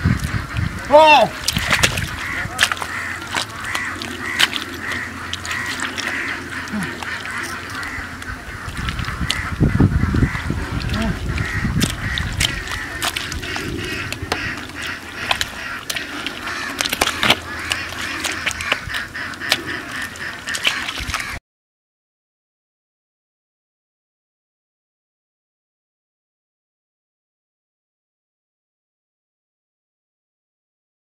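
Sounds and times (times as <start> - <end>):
waterfowl honking and quacking: 0.0 - 21.4.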